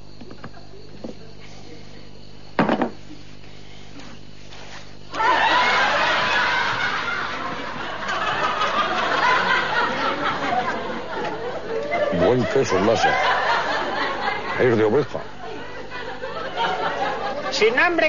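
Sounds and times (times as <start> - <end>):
studio audience laughter: 5.1 - 17.8.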